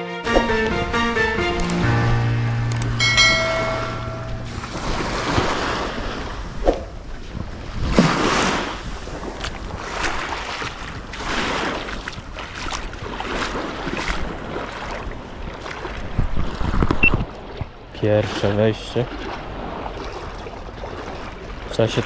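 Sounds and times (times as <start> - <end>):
wind on microphone: 2.7 - 17.9
small waves lapping: 3.1 - 22.0
water sloshing around wading legs: 4.1 - 22.0.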